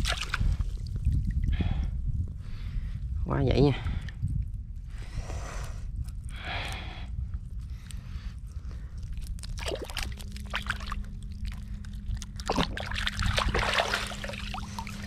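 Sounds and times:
water splashing and sloshing: 0:00.0 - 0:01.8, 0:08.4 - 0:15.0
low hum: 0:00.0 - 0:15.0
low rumble: 0:00.0 - 0:15.0.

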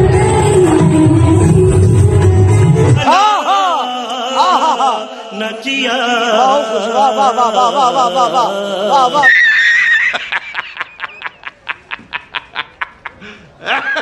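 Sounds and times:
man singing ornamented style: 0:02.9 - 0:09.4
man laughing loudly: 0:04.4 - 0:05.0, 0:07.3 - 0:14.0.

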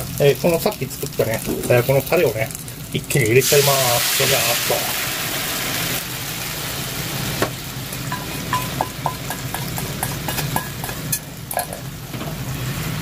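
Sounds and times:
sauce sizzling in a frying pan: 0:00.0 - 0:13.0
utensil tapping a pan: 0:08.1 - 0:11.8.

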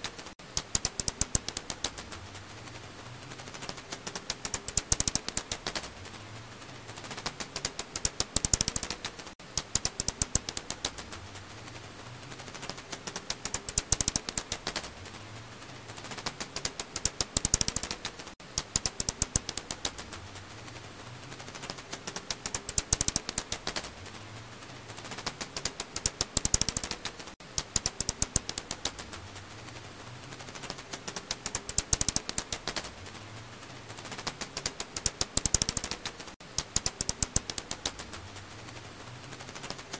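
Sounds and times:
bat echolocation clicks: 0:00.0 - 0:02.2, 0:03.6 - 0:05.9, 0:07.1 - 0:11.2, 0:12.6 - 0:14.9, 0:16.1 - 0:20.2, 0:21.5 - 0:23.9, 0:25.1 - 0:29.2, 0:30.5 - 0:32.9, 0:34.1 - 0:38.2
steady hiss: 0:00.0 - 0:39.9.

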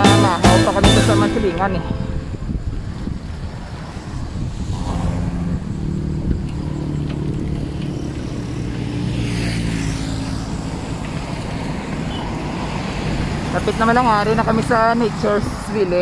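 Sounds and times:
road noise: 0:00.0 - 0:16.0
vehicle engine running: 0:04.8 - 0:16.0.

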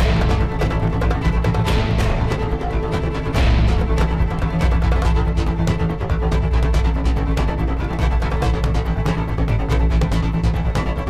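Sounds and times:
dramatic soundtrack music: 0:00.0 - 0:11.0.

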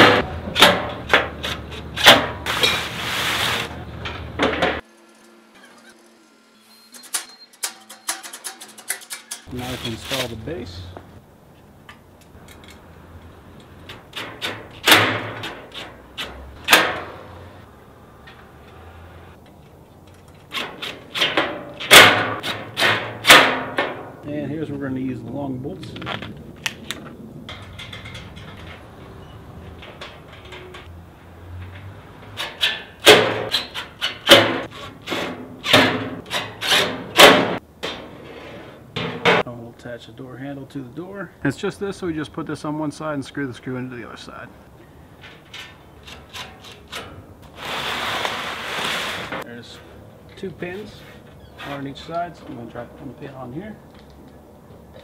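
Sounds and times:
loud metallic bangs: 0:00.0 - 0:02.9, 0:13.9 - 0:17.7, 0:20.6 - 0:24.2, 0:32.2 - 0:38.2
metal parts clanking: 0:06.9 - 0:10.8, 0:27.5 - 0:30.9.

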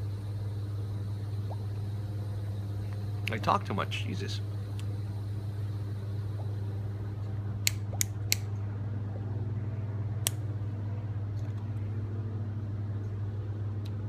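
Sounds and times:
air handling equipment hum: 0:00.0 - 0:14.0
lighter clicking: 0:07.6 - 0:08.5.

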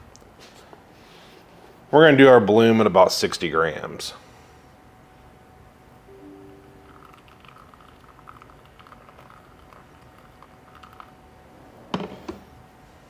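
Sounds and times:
water trickling onto coffee: 0:07.0 - 0:11.1.

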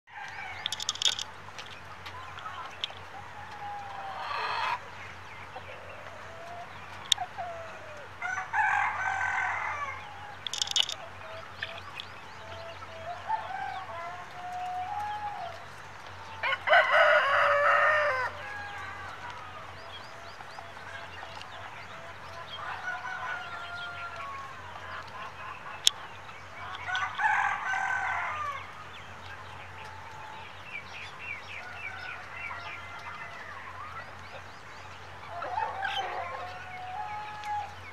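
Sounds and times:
hens clucking: 0:00.2 - 0:30.4, 0:35.1 - 0:37.9
rooster crowing: 0:07.6 - 0:11.0, 0:12.9 - 0:15.6, 0:16.3 - 0:19.4, 0:22.6 - 0:24.6, 0:26.9 - 0:28.7, 0:35.3 - 0:37.8.

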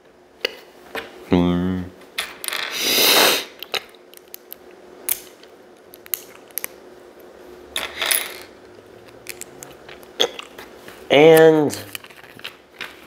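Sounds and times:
short hissing: 0:02.7 - 0:03.6.

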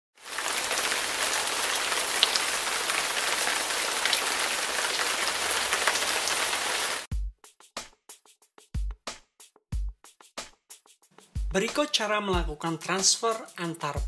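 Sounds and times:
rain-like hiss: 0:00.2 - 0:07.1.

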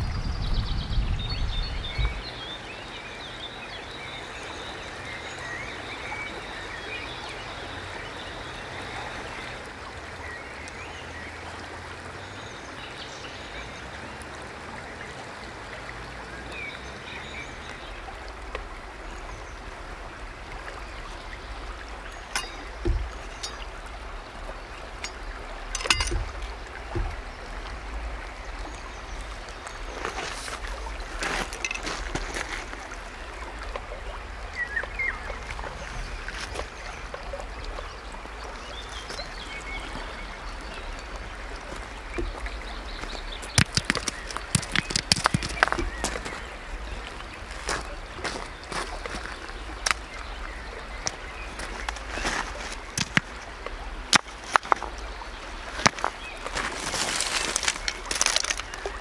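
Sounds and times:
river water flowing: 0:00.9 - 0:59.0
birds chirping: 0:19.0 - 0:59.0
sharp knocks: 0:22.3 - 0:23.7, 0:43.5 - 0:46.2.

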